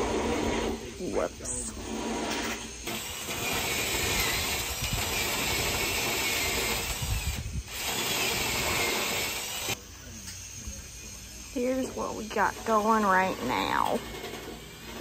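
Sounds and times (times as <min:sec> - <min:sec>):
cordless drill drilling into steel: 0:02.8 - 0:09.8.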